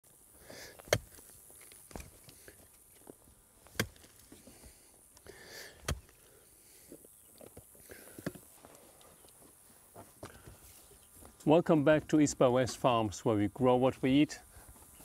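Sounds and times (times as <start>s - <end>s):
dirt crunching and scraping: 0.1s - 13.2s
pickaxe striking soil: 0.8s - 2.5s, 3.6s - 4.4s, 5.8s - 6.2s.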